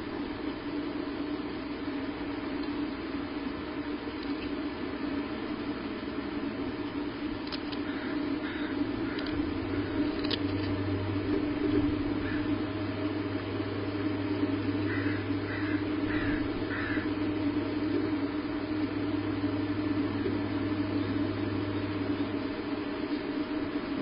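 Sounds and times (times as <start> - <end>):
steady low hum: 0.0 - 24.0
harsh bird calls: 7.8 - 10.1, 12.1 - 12.8, 14.7 - 17.3.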